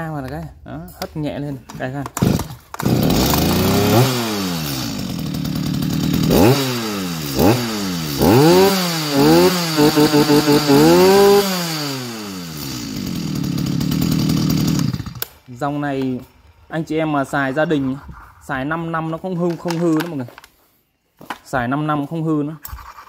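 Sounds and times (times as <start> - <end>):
starter cord pull: 2.0 - 3.7, 14.7 - 15.4
chainsaw revving and idling: 2.2 - 15.5.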